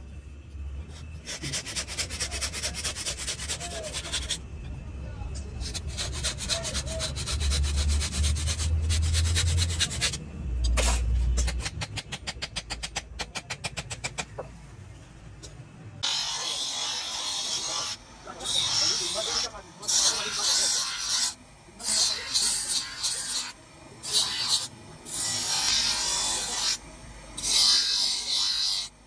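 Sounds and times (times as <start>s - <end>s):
hacksaw cutting wood: 1.2s - 4.4s, 5.6s - 10.2s, 16.0s - 26.8s, 27.4s - 29.0s.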